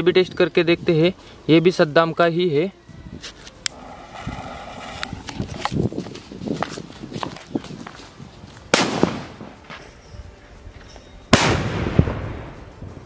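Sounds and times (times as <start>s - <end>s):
firecracker bang: 8.7s - 9.6s, 11.3s - 13.0s.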